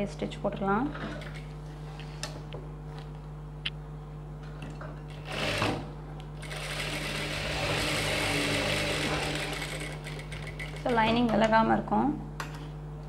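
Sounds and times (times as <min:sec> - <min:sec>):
sewing machine motor humming: 0:05.1 - 0:11.3.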